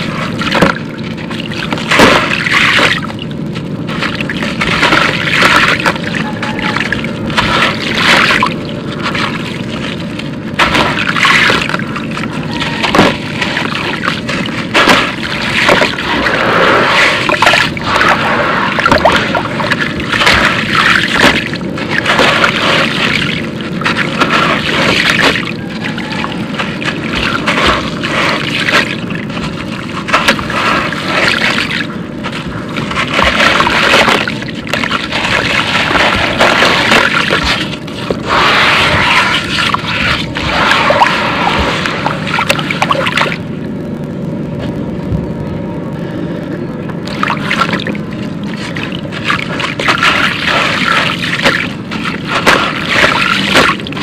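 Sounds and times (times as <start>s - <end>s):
concrete crumbling and crunching: 0.0s - 18.3s, 18.9s - 42.8s
grit splashing into water: 3.8s - 6.1s, 6.9s - 43.5s, 47.1s - 54.0s.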